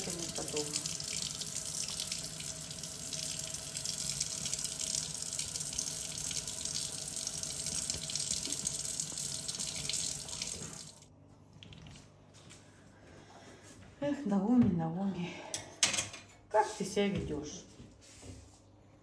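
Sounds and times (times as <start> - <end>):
tap water running into metal sink: 0.0 - 11.0.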